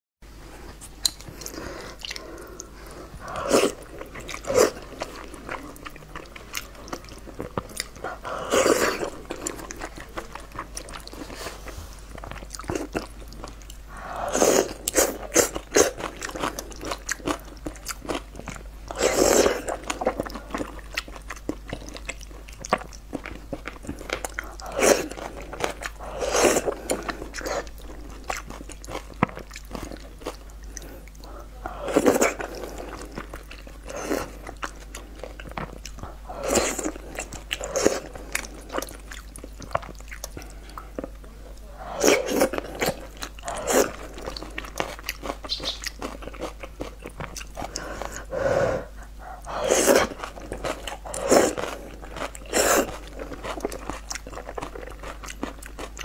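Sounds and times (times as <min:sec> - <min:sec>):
wet chewing: 0:00.7 - 0:56.0
loud noodle slurping: 0:03.3 - 0:03.8, 0:14.3 - 0:16.0, 0:48.0 - 0:51.8, 0:52.4 - 0:53.4
mouth clicks: 0:45.4 - 0:46.0.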